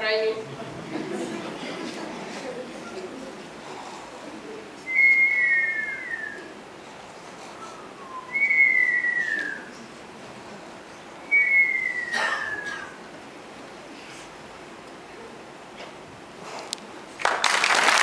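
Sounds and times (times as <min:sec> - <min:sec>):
long whistles sliding down in pitch: 0:08.0 - 0:09.7.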